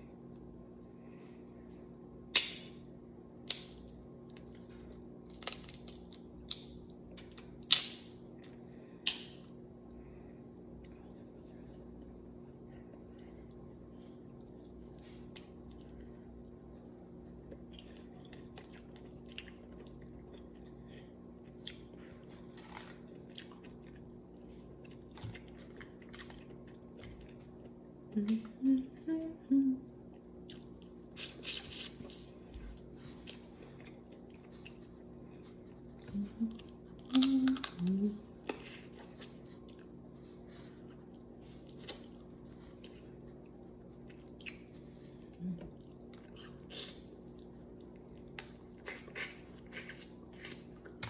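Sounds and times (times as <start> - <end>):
close-up chewing: 17.3 - 27.8, 30.1 - 51.0.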